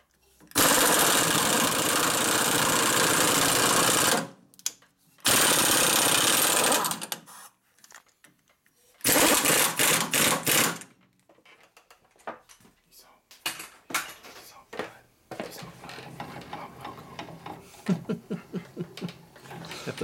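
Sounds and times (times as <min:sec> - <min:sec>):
power tool rattling: 0:00.5 - 0:04.3, 0:05.2 - 0:07.2, 0:09.0 - 0:11.0, 0:19.0 - 0:20.0.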